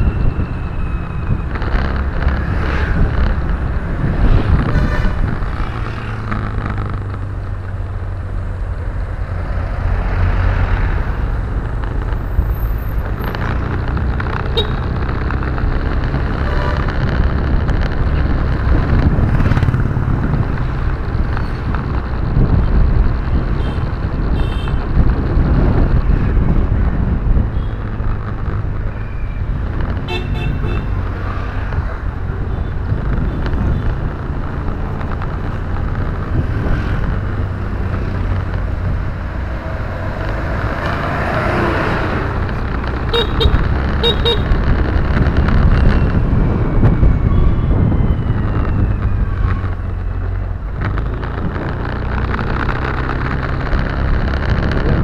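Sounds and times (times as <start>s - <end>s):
car engine and road rumble: 0.0s - 55.0s
car horn toots: 30.1s - 30.9s, 43.1s - 44.5s.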